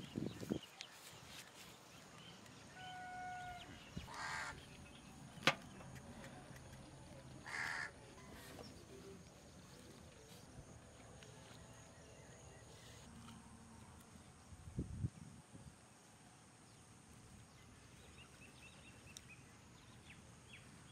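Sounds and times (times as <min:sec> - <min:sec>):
crow cawing: 0:02.8 - 0:04.6, 0:07.4 - 0:08.0.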